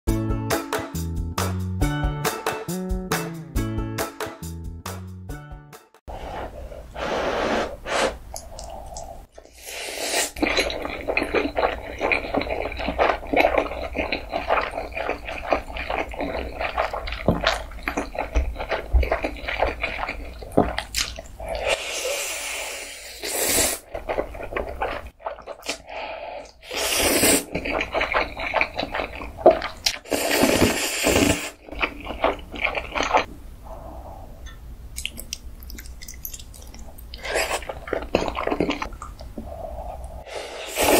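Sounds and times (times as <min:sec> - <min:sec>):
loud noodle slurps: 0:07.0 - 0:17.6, 0:21.4 - 0:23.9, 0:26.6 - 0:28.8, 0:29.9 - 0:31.6, 0:40.4 - 0:40.9
wet chewing and smacking: 0:10.3 - 0:21.6, 0:23.8 - 0:26.6, 0:27.5 - 0:30.8, 0:31.6 - 0:33.3, 0:34.9 - 0:40.1.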